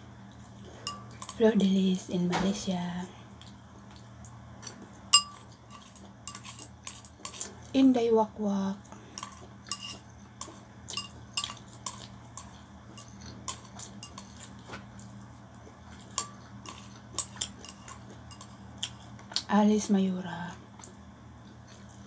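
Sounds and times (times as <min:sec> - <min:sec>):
steady low hum: 0:00.0 - 0:22.0
utensils clinking on ceramic bowl: 0:00.8 - 0:01.5, 0:05.1 - 0:07.5, 0:09.2 - 0:14.7, 0:15.9 - 0:18.6.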